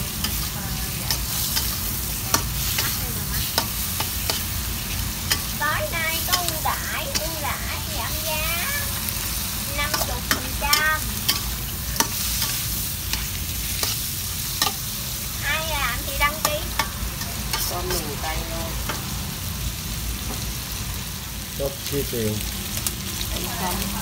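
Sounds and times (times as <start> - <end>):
shrimp sizzling in a wok: 0.0 - 24.0
metal spatula scraping wok: 0.1 - 19.1.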